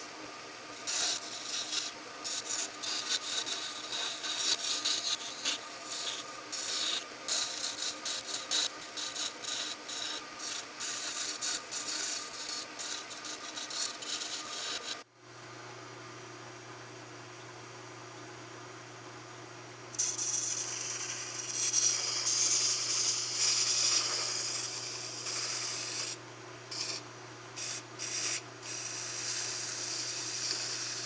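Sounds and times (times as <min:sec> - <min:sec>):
turning tool scraping wood: 0:00.7 - 0:15.0, 0:20.0 - 0:27.0, 0:27.6 - 0:31.0
wood lathe humming: 0:00.7 - 0:15.0, 0:20.0 - 0:27.0, 0:27.6 - 0:31.0.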